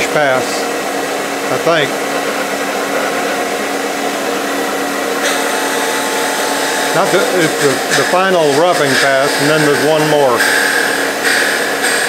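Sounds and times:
router motor whine: 0:01.1 - 0:12.0
wood being cut hiss: 0:05.2 - 0:12.0.

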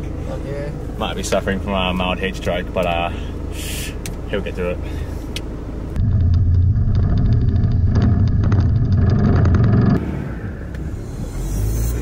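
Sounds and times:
quiet vehicle hum: 0:00.0 - 0:12.0
vehicle engine rumble: 0:00.0 - 0:12.0
knocks and rattles over ruts: 0:06.0 - 0:10.0.

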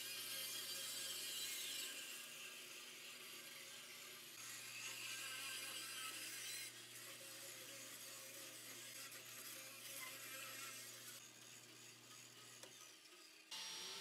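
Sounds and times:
bandsaw humming: 0:13.5 - 0:14.0.

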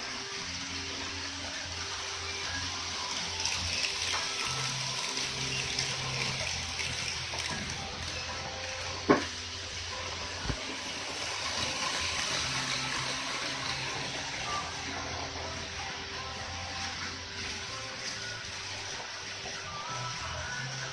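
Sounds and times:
faint background music: 0:00.0 - 0:20.9
model trains rushing on track: 0:09.4 - 0:18.3.

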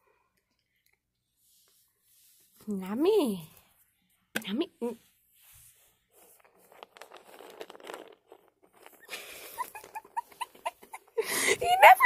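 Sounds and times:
cat crunching dry treats: 0:06.4 - 0:10.2.

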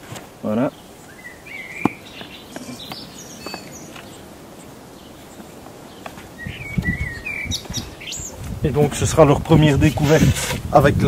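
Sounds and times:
small birds chirping: 0:00.4 - 0:10.5.

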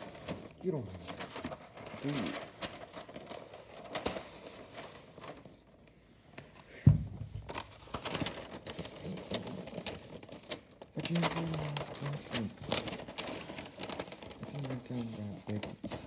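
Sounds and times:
wrapping paper rustling: 0:00.0 - 0:16.0
loud thump: 0:06.8 - 0:07.5.

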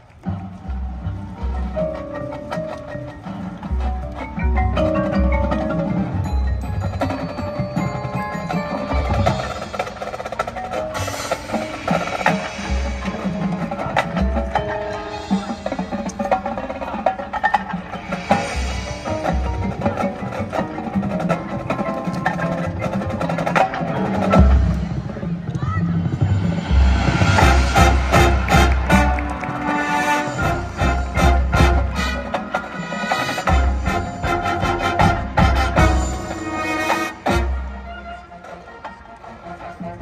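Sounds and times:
marching band playing: 0:00.0 - 0:40.0
marimba and glockenspiel: 0:00.7 - 0:23.2.

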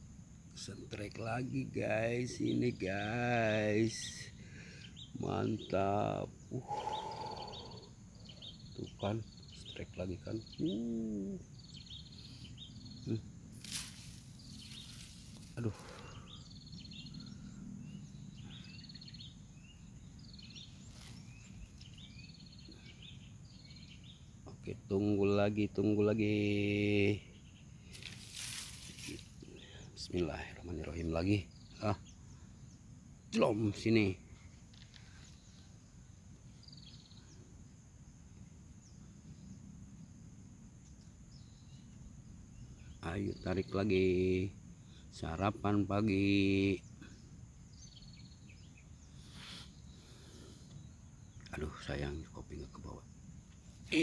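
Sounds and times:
insect drone: 0:00.0 - 0:54.0
songbird trilling: 0:01.8 - 0:24.6.

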